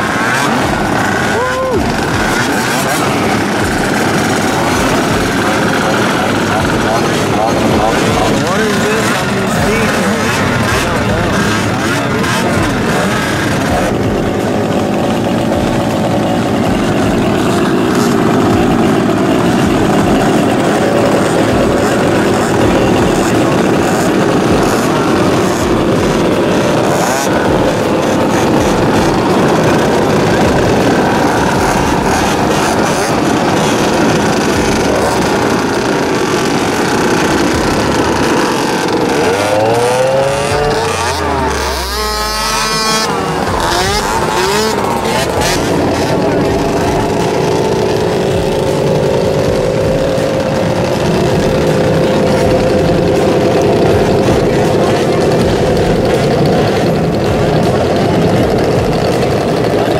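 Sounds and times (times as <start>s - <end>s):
quad engines buzzing: 0.0s - 59.9s
quad passing close: 0.0s - 59.9s.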